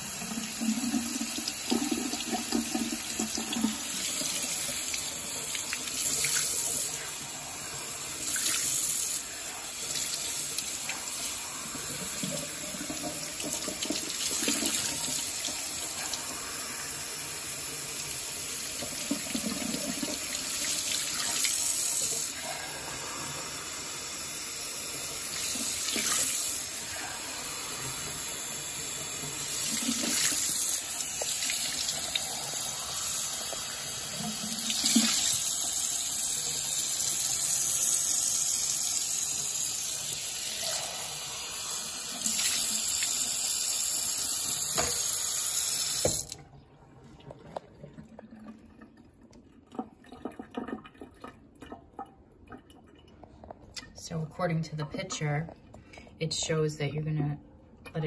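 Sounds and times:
tap water splashing into sink: 44.4 - 45.2, 45.8 - 46.4.

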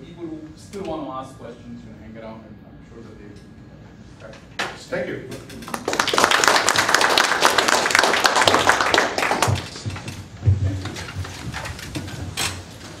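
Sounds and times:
audience applauding: 5.7 - 10.0.

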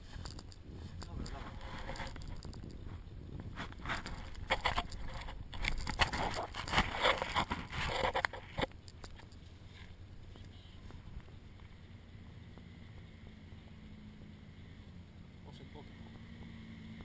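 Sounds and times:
irregular rustling: 0.0 - 11.7
steady low rumble: 0.0 - 17.0.

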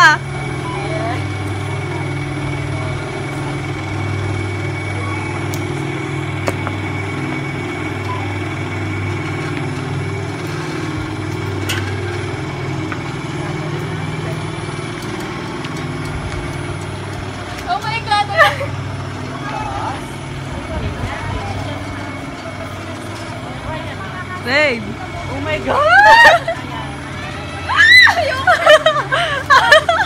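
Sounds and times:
low motor hum: 0.0 - 30.0
faint high whine: 0.2 - 12.6.

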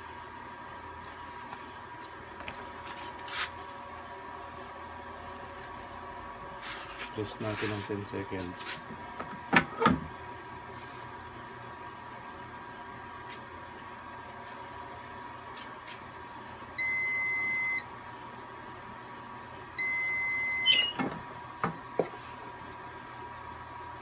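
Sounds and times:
heat press timer beeping: 16.8 - 17.9, 19.8 - 21.0.

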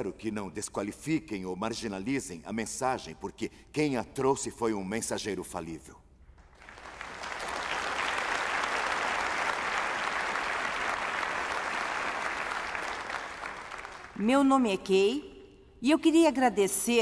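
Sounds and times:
large audience applauding: 6.4 - 14.2.

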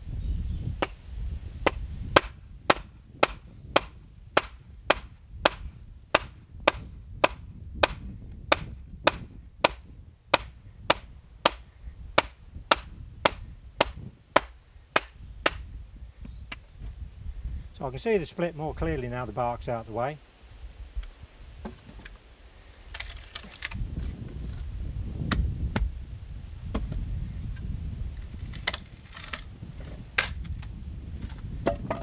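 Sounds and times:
axe striking wooden pole: 1.6 - 15.6, 25.2 - 25.9, 28.5 - 32.0.

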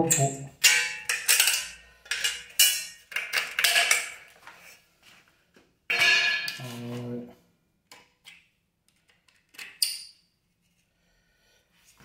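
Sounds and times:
sharp metallic clinks and scrapes: 0.0 - 4.2.

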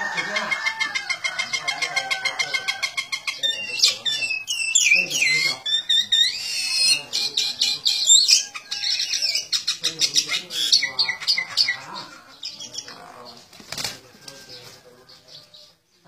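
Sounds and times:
small bird chirping shrilly: 2.9 - 11.7
wings fluttering: 13.3 - 14.8.

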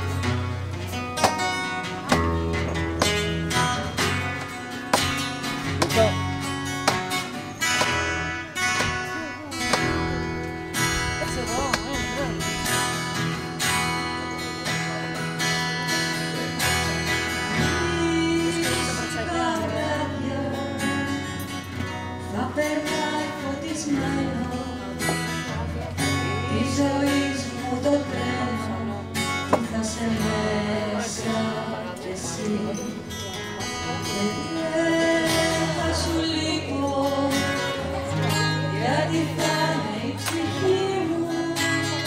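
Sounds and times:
acoustic guitar strumming chords: 0.0 - 42.0
woman singing into microphone: 17.5 - 21.2, 22.2 - 25.3, 26.2 - 33.3, 33.9 - 42.0.

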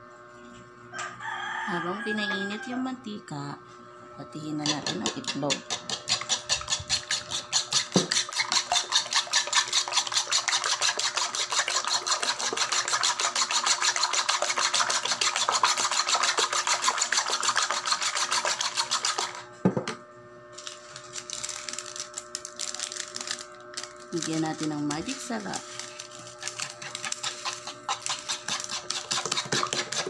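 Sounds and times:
spoon beating eggs in a bowl: 4.6 - 19.4, 24.2 - 30.0.

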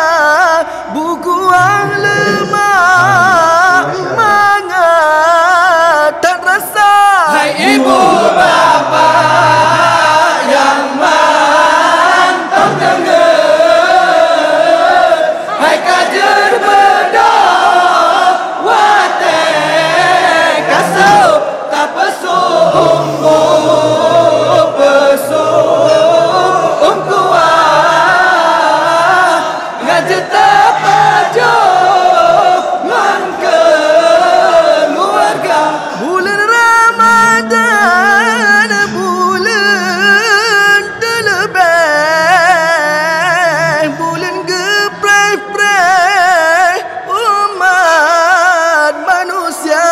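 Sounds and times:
group singing a melody: 0.0 - 49.9.

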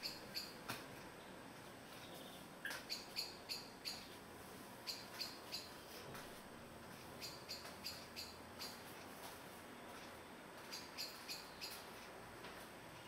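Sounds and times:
flycatcher calling: 0.0 - 0.7, 2.0 - 4.2, 4.8 - 6.0, 7.2 - 8.9, 10.6 - 11.9.

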